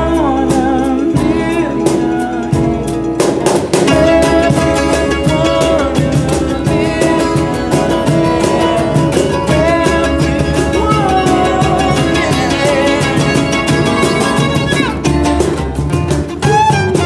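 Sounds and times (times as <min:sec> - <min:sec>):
man singing: 0:00.0 - 0:15.2
hand percussion on a suitcase: 0:00.0 - 0:17.0
mandolin: 0:00.0 - 0:17.0
strummed acoustic guitar: 0:00.0 - 0:17.0
upright bass: 0:00.0 - 0:17.0
fiddle: 0:03.2 - 0:17.0.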